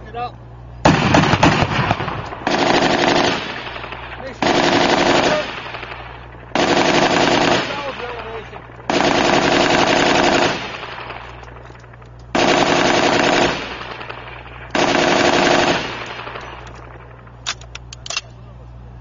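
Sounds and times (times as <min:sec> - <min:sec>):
machine gun bursts with echo: 0:00.8 - 0:17.4
sharp clicks: 0:11.0 - 0:12.4, 0:16.0 - 0:18.4.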